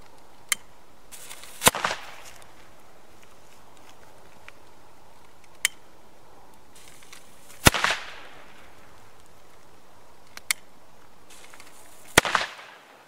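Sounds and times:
firecracker bang with crackling: 1.2 - 2.4, 7.6 - 8.7, 11.4 - 12.8.

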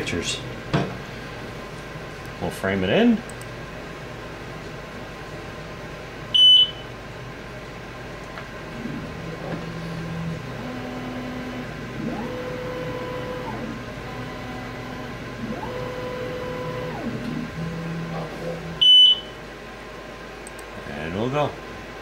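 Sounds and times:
stepper motors whining: 8.8 - 18.8
short high beep: 18.8 - 19.3.

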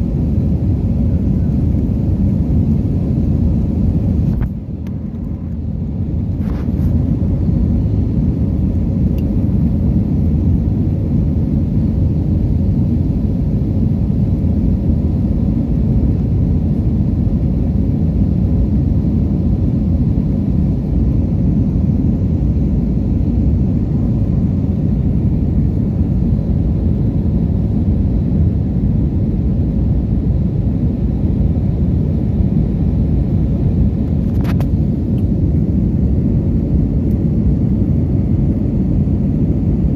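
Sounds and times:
rushing airflow: 0.0 - 10.2
airliner engines rumbling: 0.0 - 39.9.

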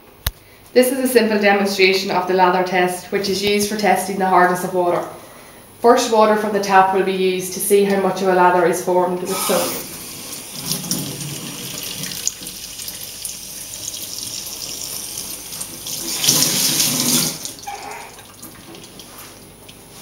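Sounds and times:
tap water running into sink: 9.3 - 19.9.

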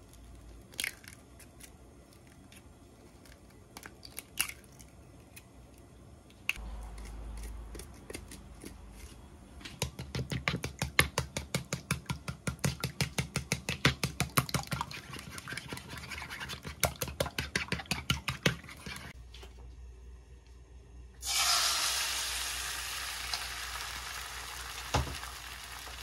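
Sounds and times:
chopsticks beating eggs in bowl: 6.9 - 9.2, 9.8 - 19.2.

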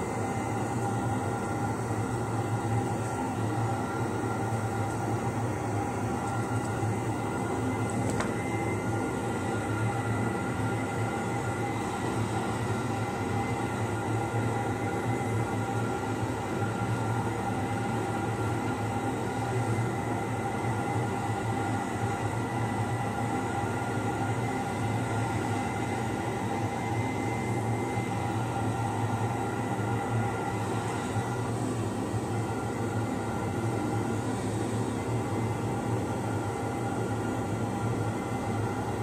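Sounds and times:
steady machine hum: 0.0 - 39.0.

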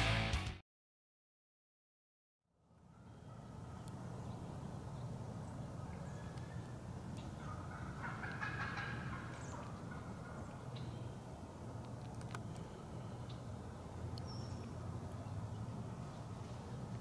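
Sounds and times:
faint clicks: 11.8 - 12.7.

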